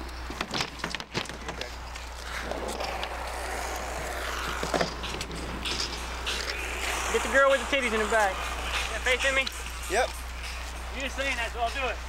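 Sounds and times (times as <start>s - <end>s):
bike landing and rattling: 0.2s - 6.2s
indistinct voices: 1.5s - 12.0s.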